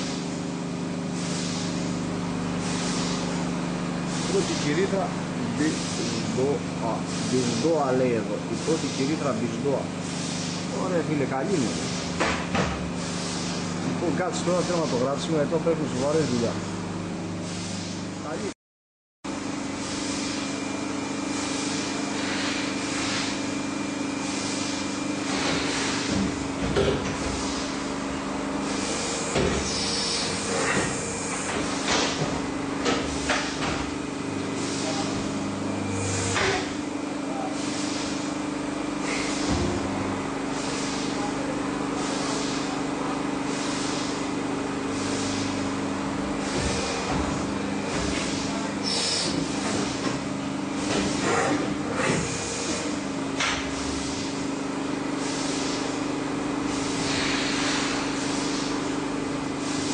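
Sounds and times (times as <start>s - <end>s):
machine hum: 0.0s - 18.5s, 19.3s - 59.9s
pulsing hiss: 37.4s - 38.3s, 40.5s - 41.3s, 42.0s - 42.8s, 43.5s - 44.2s, 44.9s - 45.6s, 46.4s - 50.0s, 56.7s - 58.8s.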